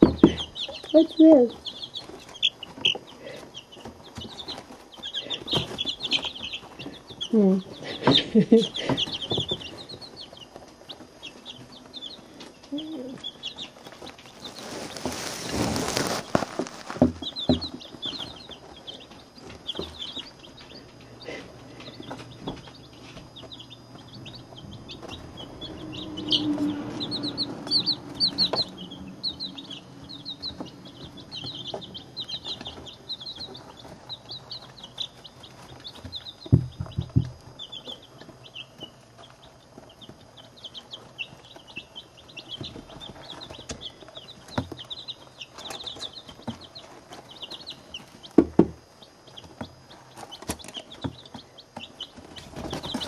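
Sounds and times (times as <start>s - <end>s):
dull knocks: 0.0s - 0.5s, 36.4s - 37.4s
chicks peeping: 0.0s - 53.0s.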